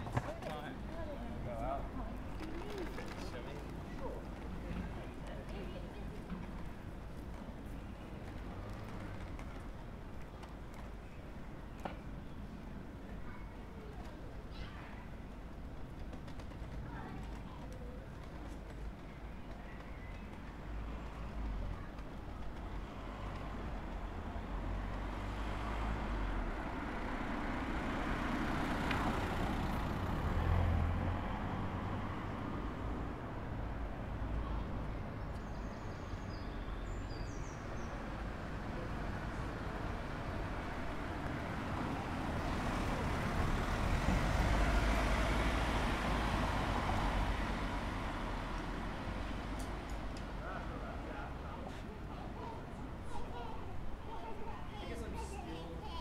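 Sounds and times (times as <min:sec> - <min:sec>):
motor vehicle passing: 0:40.0 - 0:49.5
van driving past: 0:40.4 - 0:49.5.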